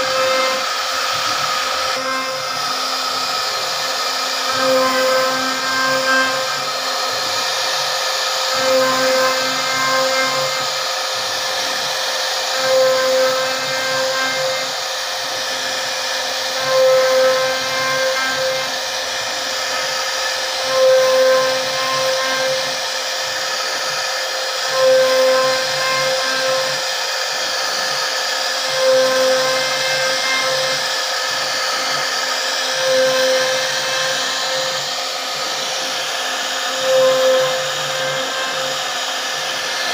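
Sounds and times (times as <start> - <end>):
router spindle whine with cutting: 0.0 - 39.9.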